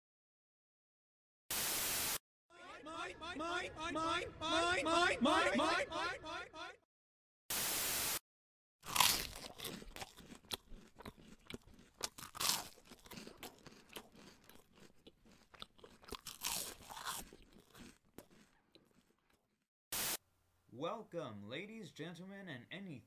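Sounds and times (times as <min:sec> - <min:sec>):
marmot chewing crunches: 0:08.9 - 0:19.5.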